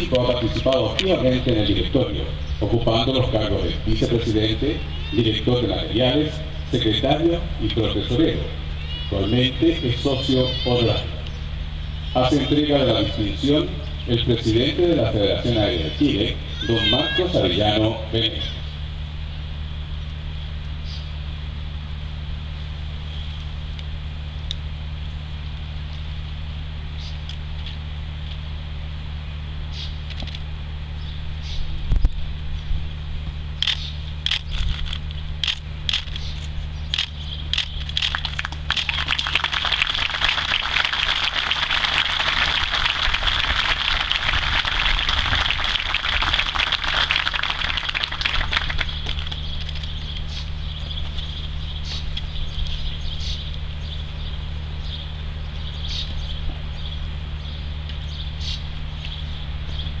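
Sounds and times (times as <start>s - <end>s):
steady low hum: 0.0s - 60.0s
sharp clicks: 33.6s - 39.0s.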